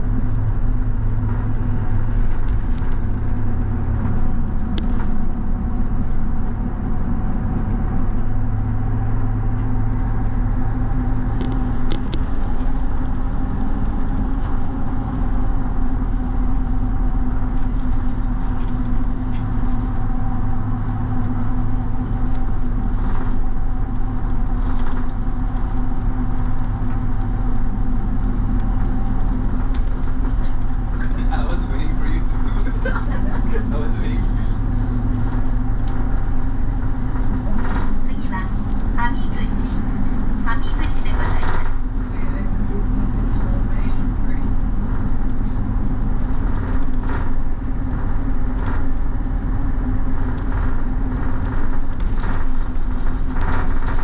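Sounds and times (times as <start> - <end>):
bus engine hum and road noise: 0.0 - 54.0
faint clicks and rattles: 45.1 - 54.0.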